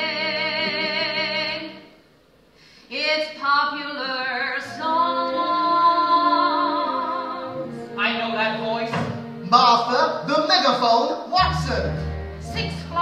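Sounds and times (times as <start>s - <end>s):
woman singing with vibrato: 0.0s - 2.0s, 2.9s - 9.4s.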